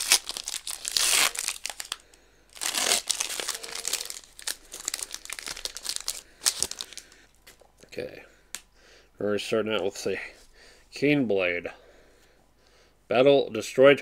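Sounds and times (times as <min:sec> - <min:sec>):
foil wrapper crinkling and tearing: 0:00.0 - 0:07.2.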